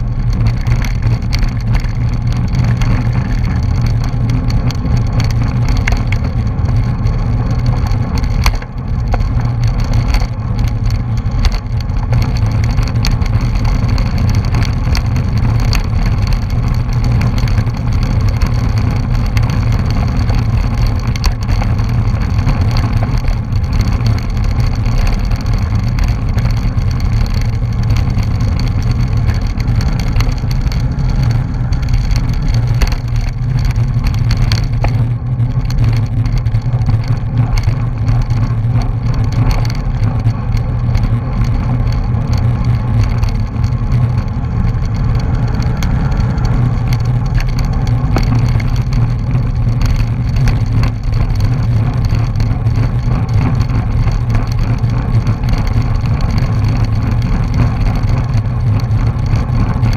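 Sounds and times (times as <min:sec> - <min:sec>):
bicycle clicks and rattles: 0:00.0 - 0:59.9
road rumble: 0:00.0 - 0:59.9.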